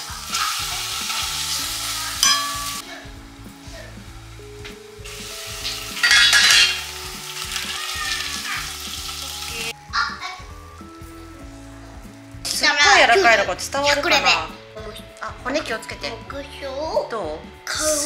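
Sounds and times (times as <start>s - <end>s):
fish sizzling in oil: 0.0s - 9.8s
ringing metal clank: 2.2s - 2.8s
metal spatula scraping pan: 5.6s - 6.9s.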